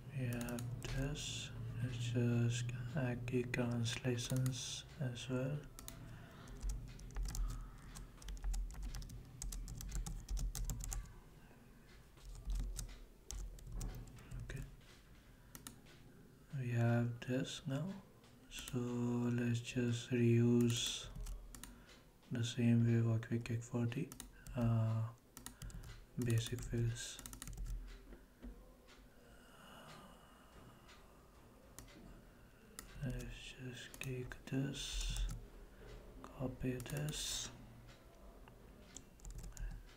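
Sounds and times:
keyboard typing: 0.3 - 1.0, 5.6 - 11.2, 12.2 - 14.6, 15.5 - 15.9, 20.6 - 21.8, 24.1 - 28.0, 33.9 - 35.4, 38.9 - 39.9
computer keys clicking: 0.3 - 1.1, 3.4 - 4.9, 5.6 - 11.2, 12.2 - 14.6, 15.5 - 16.0, 20.6 - 21.8, 24.0 - 28.0, 32.8 - 35.4, 36.7 - 38.0, 38.9 - 39.9
soft breath: 5.9 - 8.2, 29.1 - 32.8, 34.8 - 36.2.

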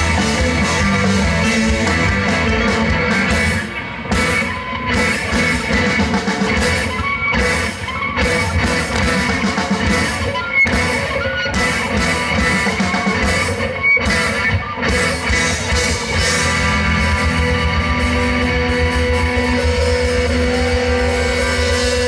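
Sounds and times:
rock band playing: 0.0 - 22.0.

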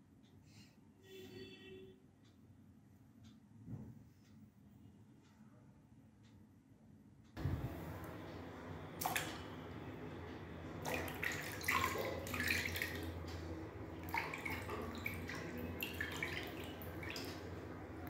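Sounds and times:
hands splashing water: 9.0 - 9.4, 10.8 - 13.4, 14.0 - 17.6
tap water running into bucket: 9.0 - 9.5, 10.8 - 17.7.

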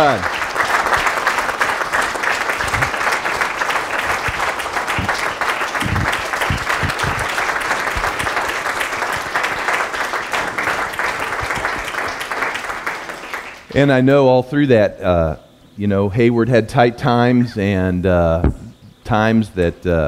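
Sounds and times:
congregation applauding: 0.0 - 14.0
low thumps: 2.6 - 3.0, 4.0 - 8.2, 18.4 - 19.0.

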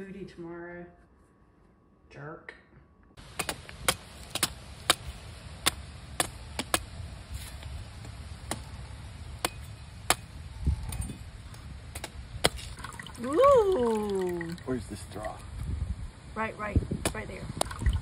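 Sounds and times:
machete chopping coconuts: 3.2 - 7.0, 7.6 - 8.8, 9.4 - 11.1, 11.9 - 12.8.

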